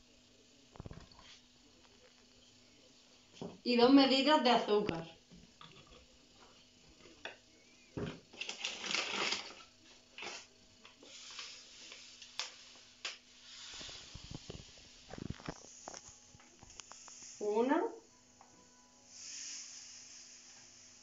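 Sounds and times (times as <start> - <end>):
plastic bag rustling: 8.3 - 10.5
sugar pouring into plastic cup: 8.3 - 17.5, 19.1 - 21.0.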